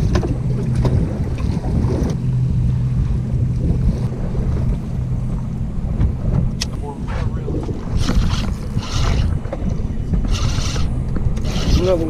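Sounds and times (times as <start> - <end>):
boat engine idling: 0.0 - 12.0
wind buffeting microphone: 0.0 - 12.0.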